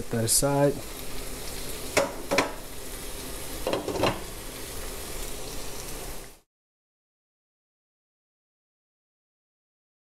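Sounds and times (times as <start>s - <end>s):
steady hiss: 0.0s - 6.5s
glass lid knocking on pan: 2.0s - 2.6s.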